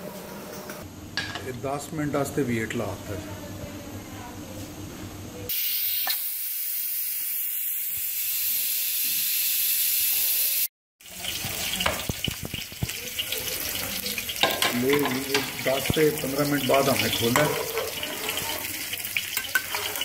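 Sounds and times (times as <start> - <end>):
pressure cooker steam hissing: 5.5 - 10.7.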